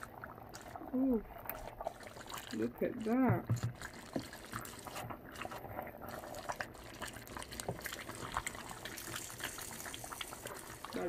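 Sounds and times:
soup boiling and bubbling: 0.0 - 11.0.

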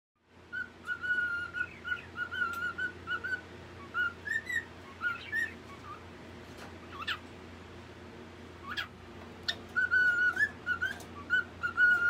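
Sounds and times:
cockatiel whistling: 0.5 - 6.0, 8.6 - 12.0.

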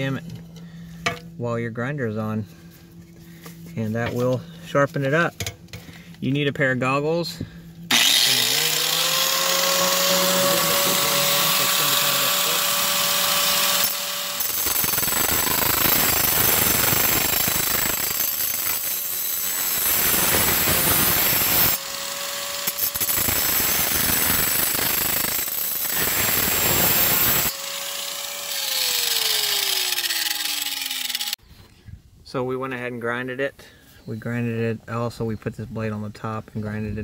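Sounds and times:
angle grinder grinding steel: 7.9 - 31.4
grinder motor whine: 7.9 - 31.4.

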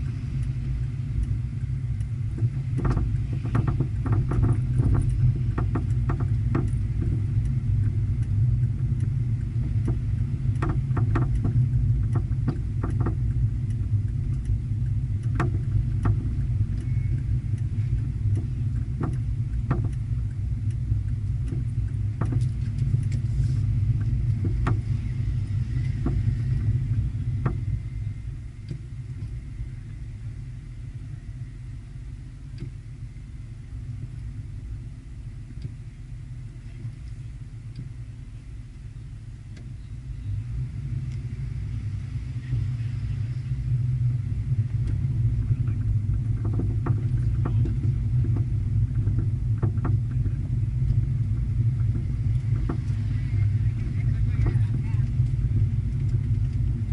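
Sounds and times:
car engine low rumble: 0.0 - 56.9.

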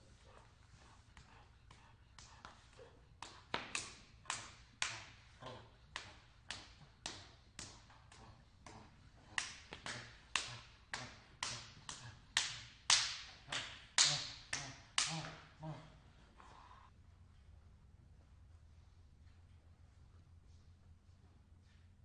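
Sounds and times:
open-handed slaps on skin: 3.2 - 5.2, 5.9 - 15.4.

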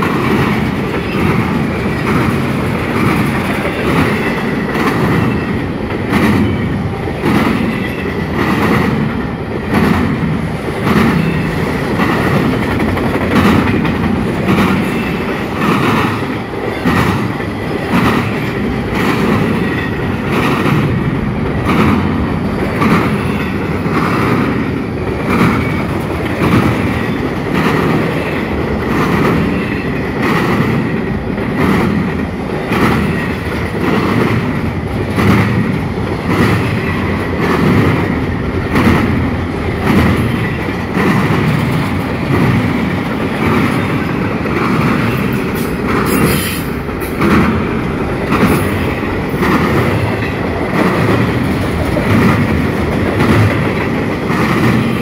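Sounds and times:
train wheels clattering over rail joints: 0.0 - 55.0.

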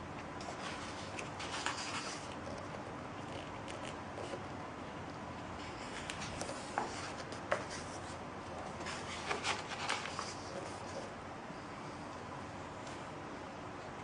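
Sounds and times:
book pages turning: 5.6 - 11.1.

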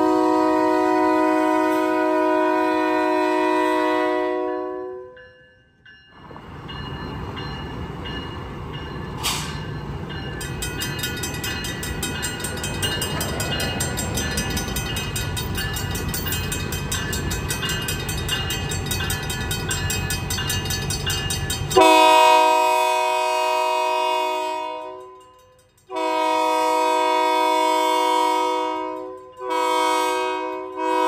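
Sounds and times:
locomotive air horn: 0.0 - 5.2, 21.8 - 25.2, 25.9 - 31.0
crossing bell ringing: 4.1 - 31.0
diesel locomotive rumbling: 5.8 - 31.0.

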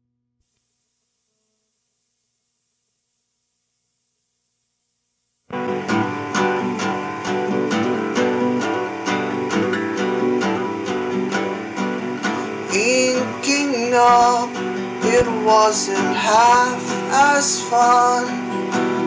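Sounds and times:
guitar plucking: 5.5 - 19.0.

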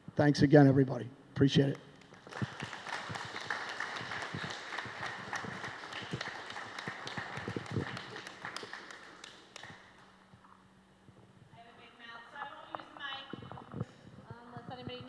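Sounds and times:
audience applauding: 2.0 - 10.2.

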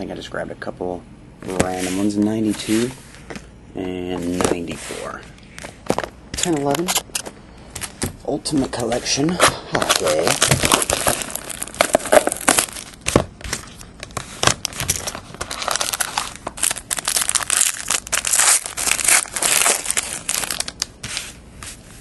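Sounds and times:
plastic shrink wrap crinkling: 8.8 - 21.4.

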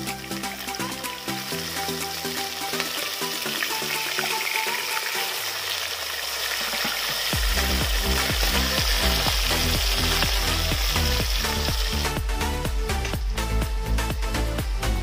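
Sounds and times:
background music with bass beat: 0.0 - 4.1, 7.3 - 15.0
fish sizzling in hot oil: 0.0 - 12.2.

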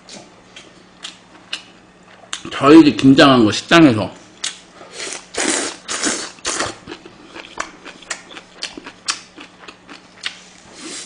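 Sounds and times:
low electrical hum: 0.0 - 11.0
chewing food crunching: 4.4 - 11.0.

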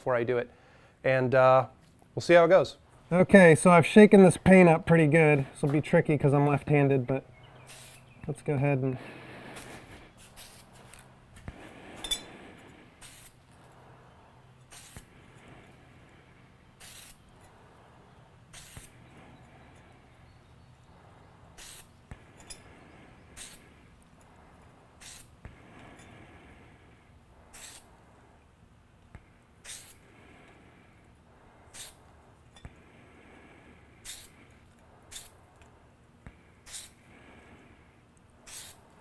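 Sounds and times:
spray paint can hissing: 7.7 - 8.0, 9.6 - 11.0, 13.0 - 13.4, 14.7 - 15.1, 16.8 - 17.3, 18.5 - 19.0, 21.6 - 22.0, 23.4 - 23.7, 25.0 - 25.4, 27.5 - 27.9, 29.6 - 30.0, 31.7 - 32.0, 34.0 - 34.4, 35.1 - 35.4, 36.6 - 37.0, 38.4 - 39.0.

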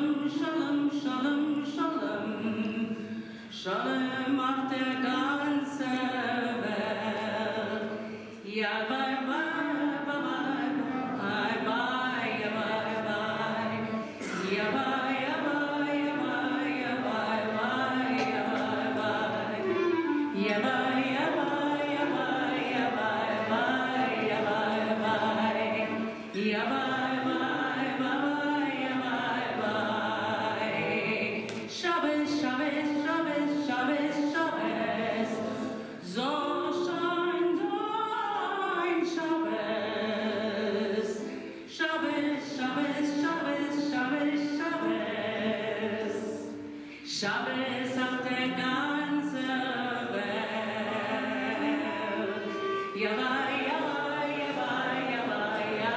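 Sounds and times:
woman singing into a microphone: 0.0 - 55.9
singer breathing: 3.1 - 3.5, 46.6 - 47.1.

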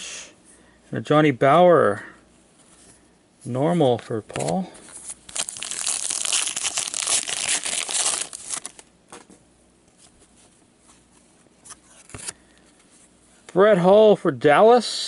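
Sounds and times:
cards being handled: 4.3 - 11.0, 11.6 - 13.1
card pack wrapper tearing and crinkling: 4.4 - 8.9.

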